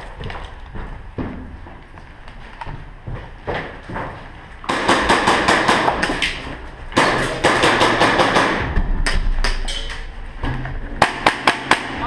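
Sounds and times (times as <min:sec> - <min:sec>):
footsteps running up concrete stairs: 0:00.0 - 0:04.3.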